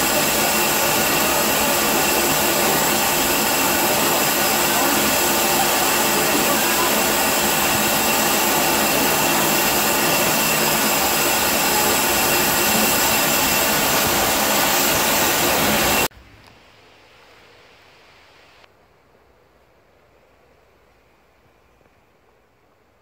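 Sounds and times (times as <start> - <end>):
locomotive blowing off steam: 0.0 - 16.1.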